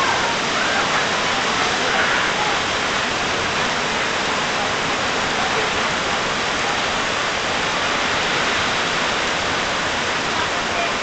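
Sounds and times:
heavy rain pouring: 0.0 - 11.0.

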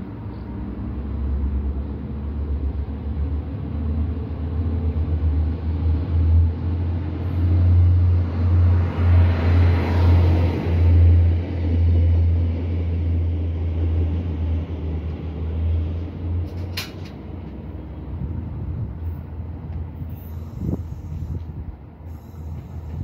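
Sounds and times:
train diesel engine drone: 0.0 - 23.0
short high-pitched squeak: 20.1 - 21.4.

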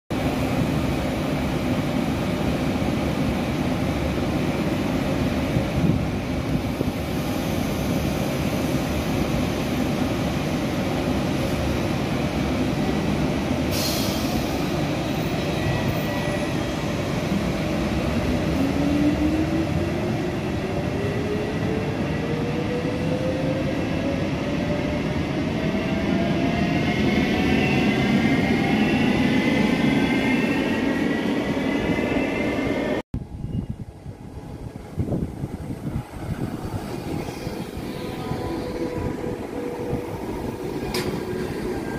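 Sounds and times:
train wheels rumbling: 25.6 - 41.9.

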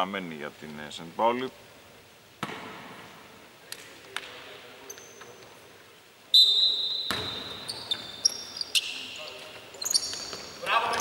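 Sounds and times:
shoe squeals on court: 6.4 - 11.0.

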